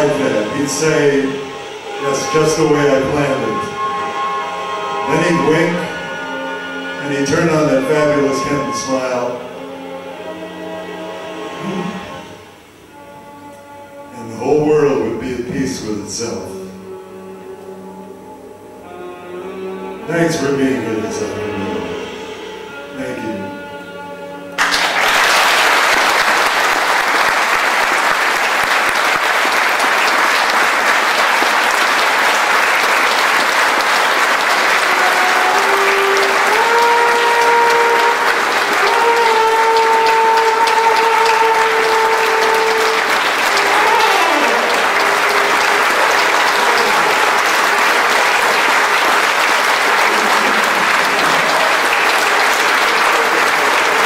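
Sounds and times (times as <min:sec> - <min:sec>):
music: 0:00.0 - 0:54.0
audience applause: 0:24.6 - 0:54.0
trombone held notes: 0:29.9 - 0:54.0.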